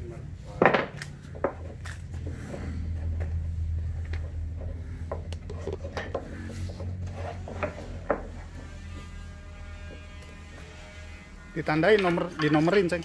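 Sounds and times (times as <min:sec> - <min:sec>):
steady low hum: 0:00.0 - 0:13.0
plywood panels knocking and scraping: 0:04.1 - 0:08.8.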